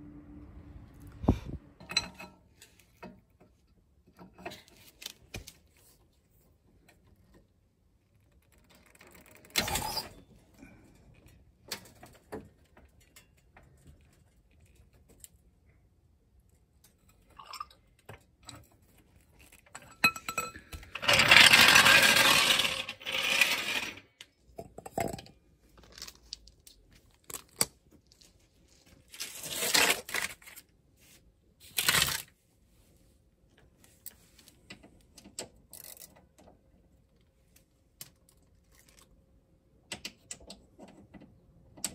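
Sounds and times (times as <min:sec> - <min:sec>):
jack wheels rattling on concrete: 0:20.0 - 0:24.2.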